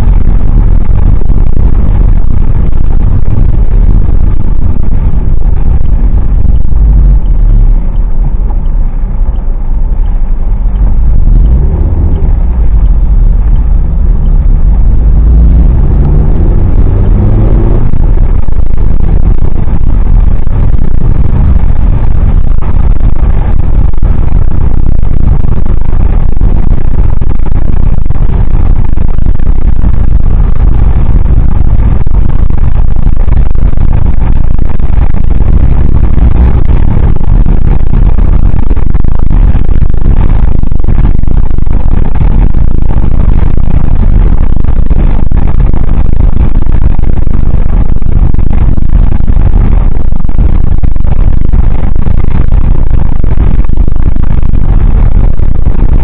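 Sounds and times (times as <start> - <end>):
tyres on wet road: 0.0 - 44.2
car engine rumble: 0.0 - 56.0.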